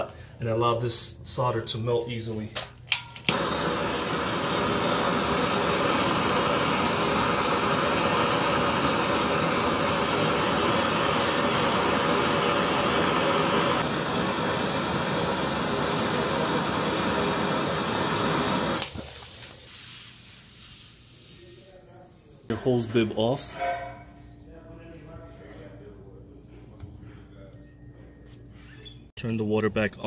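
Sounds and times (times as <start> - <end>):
torch shutoff click: 2.6 - 19.8
gas torch hissing: 3.2 - 22.5.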